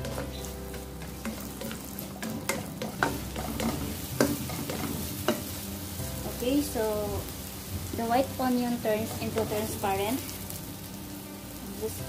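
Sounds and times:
spatula tapping pan: 0.0 - 5.6
onions sizzling in butter: 0.0 - 12.0.

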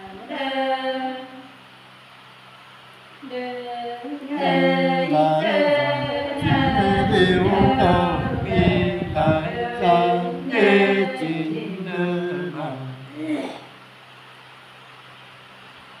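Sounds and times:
low rumble: 6.0 - 10.0.

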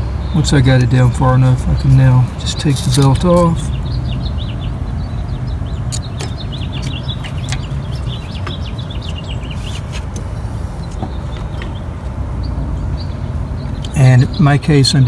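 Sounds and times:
small birds chirping: 0.0 - 15.0
steady low hum: 0.0 - 15.0
light clicks: 5.9 - 8.7.

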